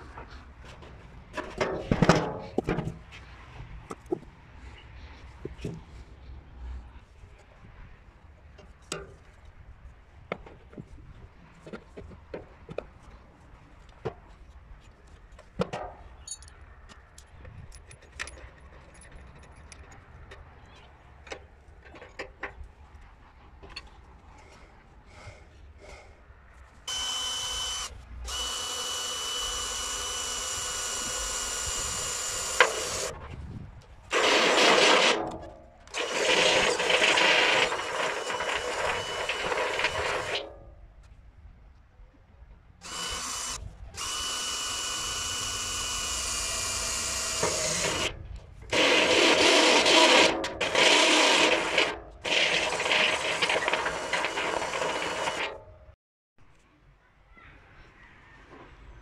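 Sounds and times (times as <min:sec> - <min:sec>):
cordless drill whining: 0:26.9 - 0:33.1, 0:35.9 - 0:40.4, 0:42.8 - 0:48.1, 0:48.7 - 0:55.6.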